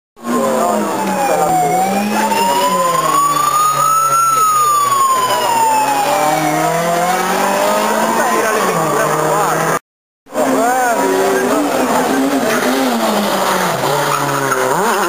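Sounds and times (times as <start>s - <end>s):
vehicle siren wailing: 0.2s - 9.8s.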